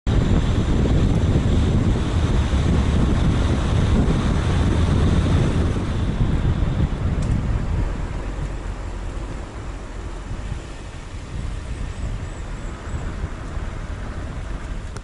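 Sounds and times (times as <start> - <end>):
road noise: 0.0 - 15.0
wind buffeting microphone: 0.1 - 15.0.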